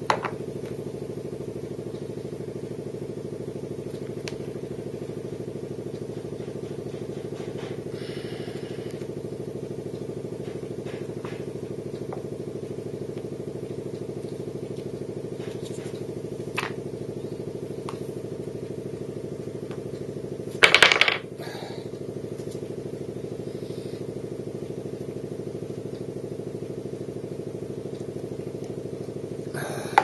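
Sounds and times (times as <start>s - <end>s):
steady machine hum: 0.0s - 30.0s
wooden blocks clattering on table: 20.6s - 21.3s.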